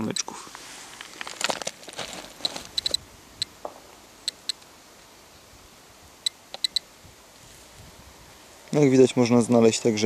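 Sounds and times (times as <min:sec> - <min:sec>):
dosimeter clicking: 0:02.7 - 0:03.5, 0:04.3 - 0:04.7, 0:06.5 - 0:06.8.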